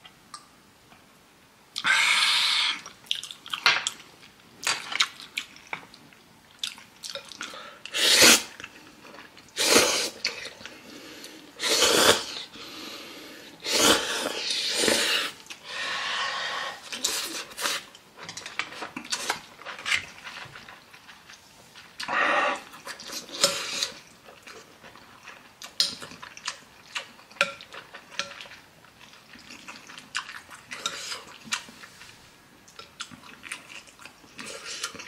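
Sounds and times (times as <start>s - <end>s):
chewing: 2.8s - 7.6s, 16.8s - 35.0s
person slurping noodles: 7.9s - 8.6s, 9.6s - 10.5s, 11.6s - 17.9s.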